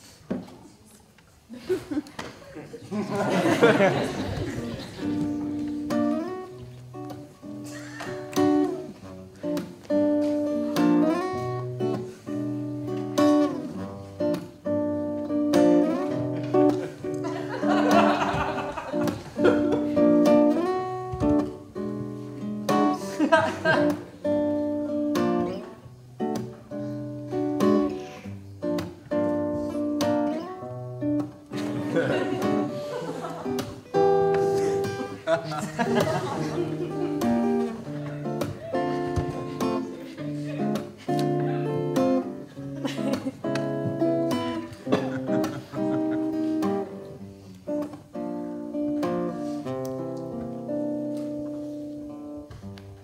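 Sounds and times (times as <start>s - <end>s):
acoustic guitar strumming: 4.7s - 53.0s.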